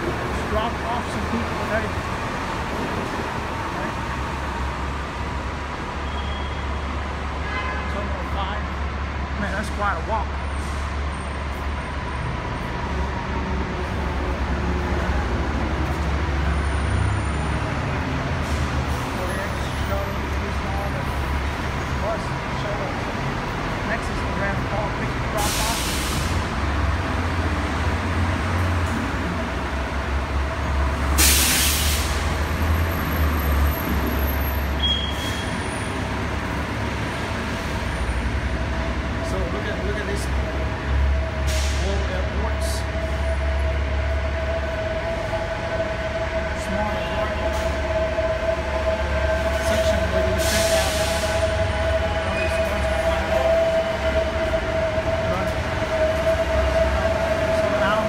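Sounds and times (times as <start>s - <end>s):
road traffic rumble: 0.0s - 58.0s
bus air brakes hissing: 25.2s - 27.2s, 31.0s - 36.1s, 40.7s - 42.3s, 49.3s - 54.4s.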